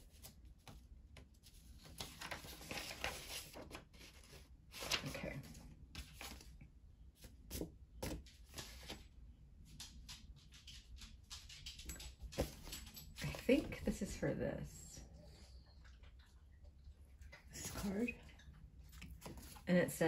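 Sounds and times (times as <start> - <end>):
paper and card rustling: 0.0 - 6.5, 7.2 - 9.0, 19.0 - 19.7.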